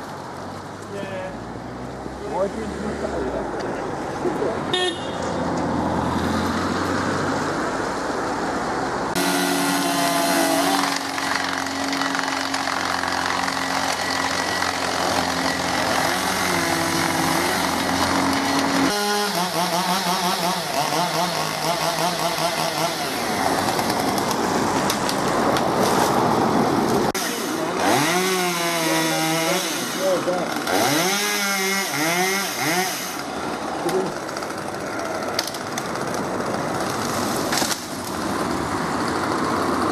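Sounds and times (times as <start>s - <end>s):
chainsaws revving: 9.2s - 25.1s, 27.1s - 37.8s.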